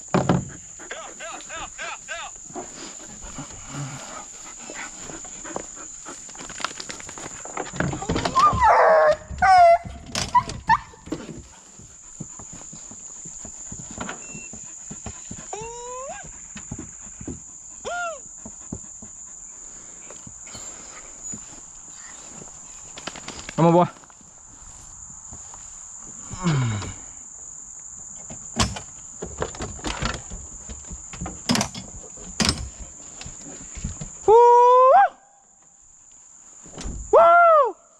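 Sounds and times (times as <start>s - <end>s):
sharp knocks and clunks: 0.0s - 0.6s
high-pitched insect chorus: 0.0s - 37.9s
hound giving high cries: 8.3s - 11.0s.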